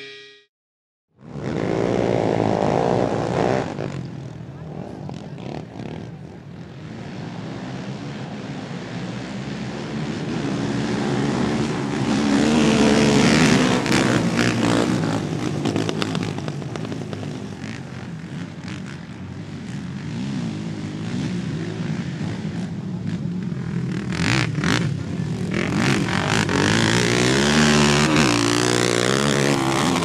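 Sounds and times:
quad engines revving: 1.2s - 30.0s.

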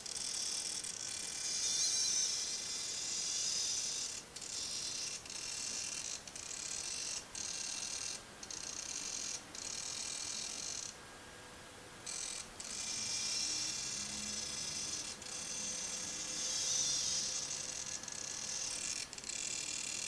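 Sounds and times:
servo motor whining: 0.0s - 11.0s, 12.1s - 20.0s.

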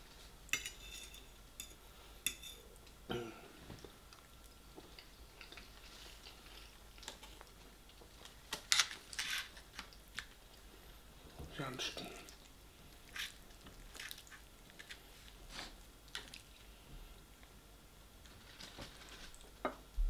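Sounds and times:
fork scraping foil tray: 8.6s - 9.6s
chewing: 12.2s - 15.1s, 16.1s - 16.7s.

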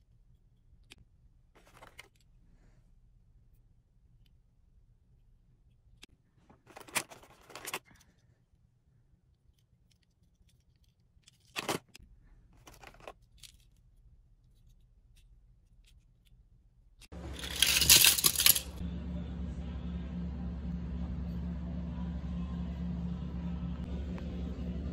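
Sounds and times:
steady low hum: 17.1s - 24.9s
toy cars clicking: 17.2s - 18.8s.

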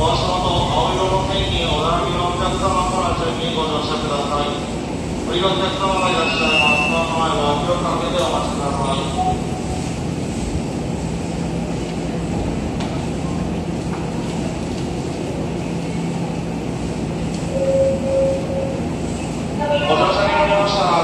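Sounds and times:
train low hum: 0.0s - 21.0s
electric train stopping: 0.1s - 10.4s, 17.2s - 21.0s
short held tone: 17.5s - 18.8s.

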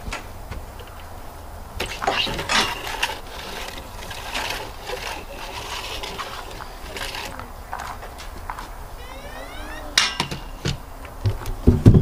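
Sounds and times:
metal detector scraping on wood: 1.8s - 8.0s.

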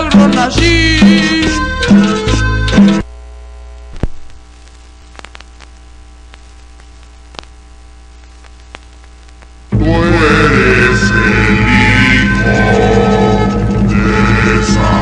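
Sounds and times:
music from vinyl record: 0.0s - 3.1s
turntable hum: 1.9s - 9.8s
vinyl crackles and pops: 2.9s - 9.8s.

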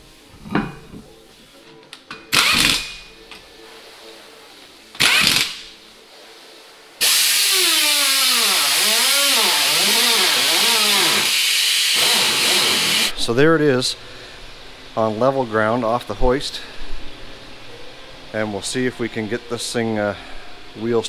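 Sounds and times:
loud steady air hiss: 0.0s - 1.7s, 2.3s - 21.0s
pneumatic impact wrench bursts: 2.3s - 3.0s, 5.0s - 5.6s, 7.0s - 13.1s.

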